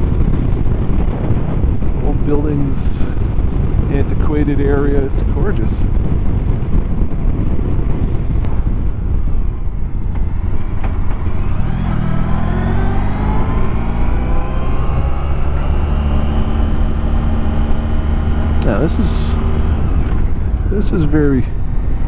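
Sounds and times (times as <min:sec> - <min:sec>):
wind and road noise: 0:00.0 - 0:22.0
motorcycle engine running: 0:05.9 - 0:22.0.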